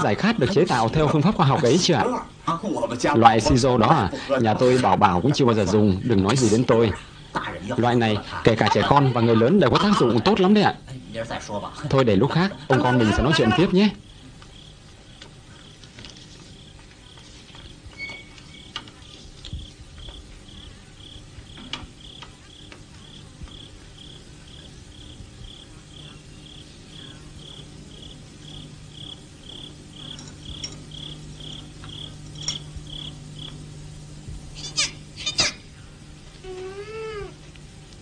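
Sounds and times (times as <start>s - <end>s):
cricket chirping: 12.8s - 15.8s, 18.0s - 33.8s.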